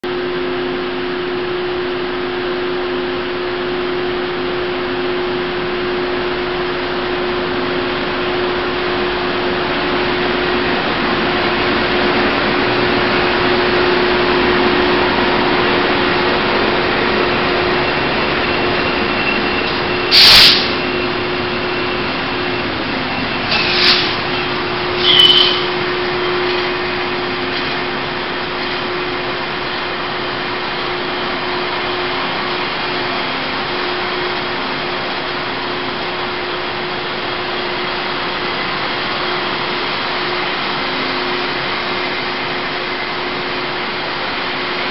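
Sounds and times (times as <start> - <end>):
diesel locomotive engine drone: 0.0 - 44.9
loud sharp noise: 18.1 - 27.5
brief high squeal: 18.2 - 22.1, 23.1 - 26.5.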